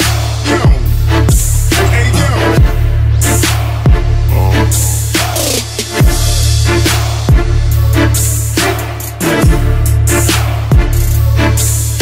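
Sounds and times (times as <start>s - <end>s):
music with heavy beat: 0.0s - 12.0s.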